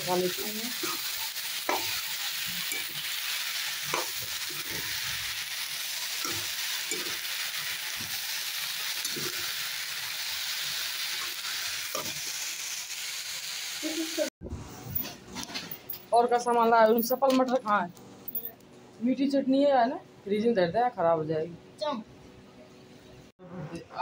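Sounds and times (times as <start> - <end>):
vegetables sizzling in hot oil: 0.0 - 14.3.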